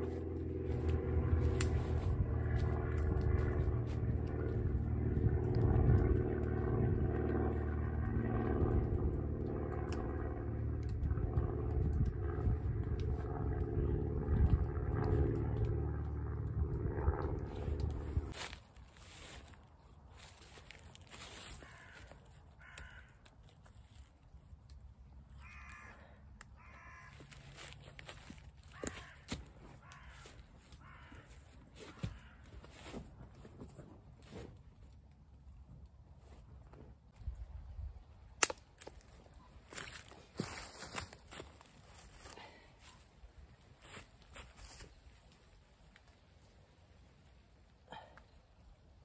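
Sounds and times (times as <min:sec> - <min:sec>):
low engine drone: 0:00.0 - 0:49.0
bird cawing: 0:21.2 - 0:23.6, 0:25.3 - 0:33.0.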